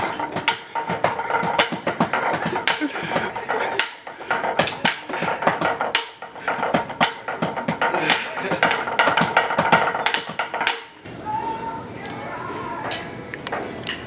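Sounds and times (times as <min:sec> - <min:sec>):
drumsticks hitting metal pan: 0:00.0 - 0:11.0
drumsticks hitting wicker basket: 0:00.0 - 0:11.0.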